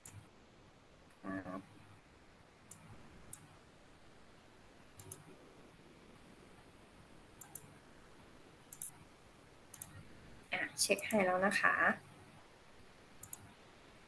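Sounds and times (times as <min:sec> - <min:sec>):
computer mouse clicks: 0:00.0 - 0:00.2, 0:02.7 - 0:03.5, 0:05.0 - 0:05.3, 0:07.4 - 0:07.7, 0:08.7 - 0:09.0, 0:09.7 - 0:10.0, 0:11.0 - 0:11.2, 0:13.2 - 0:13.5.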